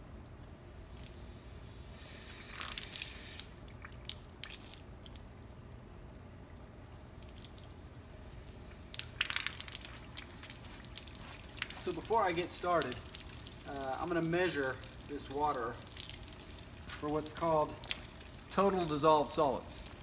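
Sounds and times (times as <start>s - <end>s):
water sputtering from a hose: 0.8s - 5.6s, 7.0s - 20.0s
water splashing onto concrete: 2.5s - 6.2s, 8.9s - 20.0s.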